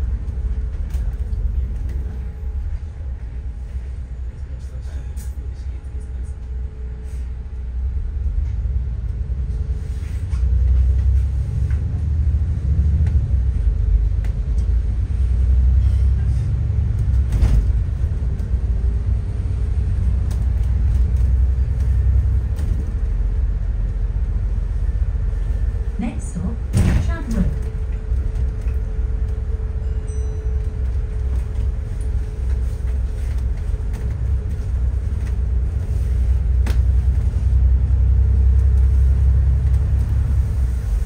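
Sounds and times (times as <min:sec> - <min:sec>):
bus engine and road rumble: 0:00.0 - 0:41.0.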